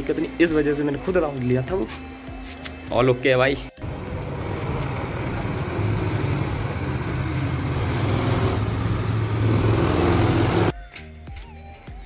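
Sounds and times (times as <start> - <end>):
music: 0.0 - 7.8, 8.5 - 12.0
go-kart engines: 3.8 - 10.7
road and wind noise: 3.8 - 10.7.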